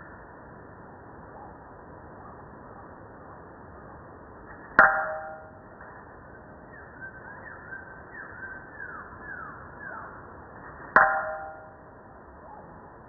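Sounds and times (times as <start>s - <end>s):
hammer clanging on anvil: 4.8s - 5.6s, 11.0s - 11.8s.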